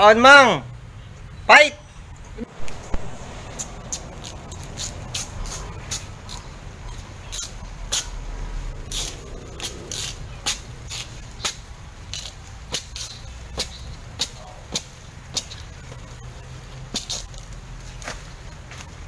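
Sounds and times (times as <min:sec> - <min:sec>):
footsteps: 0:02.2 - 0:11.2.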